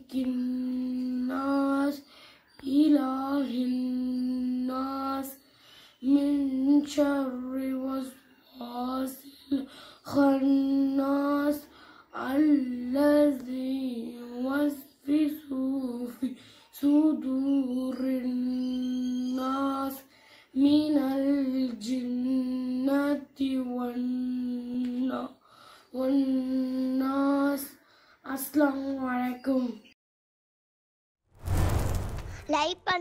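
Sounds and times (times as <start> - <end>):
woman chanting melodically: 0.0 - 2.0, 16.8 - 20.0.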